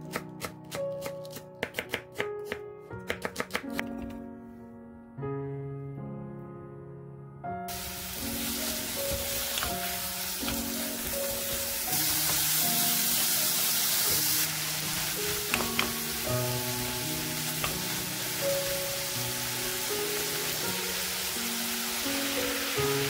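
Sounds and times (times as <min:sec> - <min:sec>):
meat sizzling in a wok: 0:07.7 - 0:23.0.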